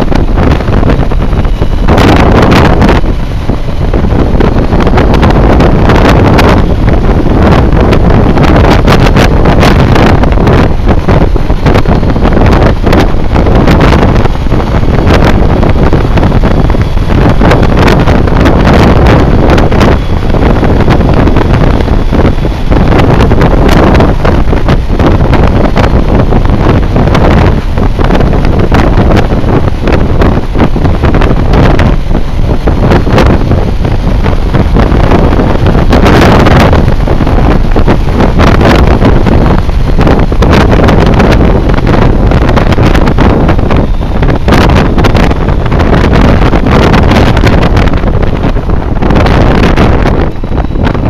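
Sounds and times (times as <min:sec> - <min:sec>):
wind buffeting microphone: 0:00.0 - 0:51.0.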